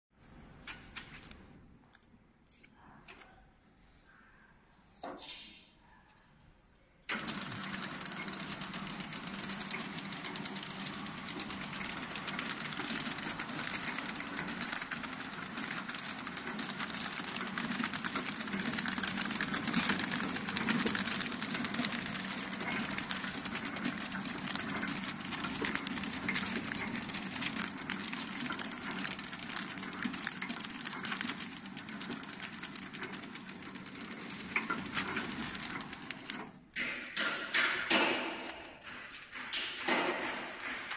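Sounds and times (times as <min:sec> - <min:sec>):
high machine whine: 0:07.1 - 0:36.6
packing machine clattering: 0:07.1 - 0:40.9.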